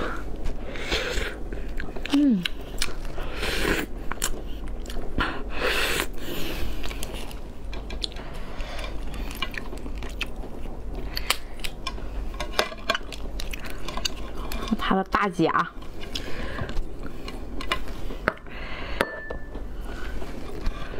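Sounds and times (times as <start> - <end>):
chewing: 6.7 - 11.9, 13.0 - 14.8.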